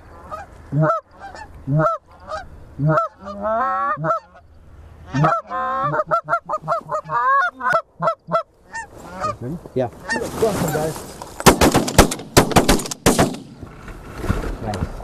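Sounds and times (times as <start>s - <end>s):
goose honking and clucking: 0.2s - 11.0s.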